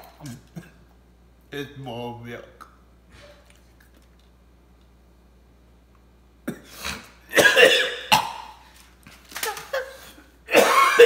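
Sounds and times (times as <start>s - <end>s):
man coughing: 0.3s - 0.9s, 6.5s - 8.5s, 10.5s - 11.0s.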